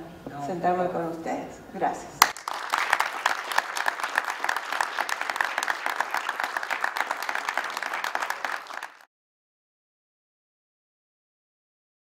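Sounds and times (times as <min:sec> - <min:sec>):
audience applause: 0:02.2 - 0:09.1.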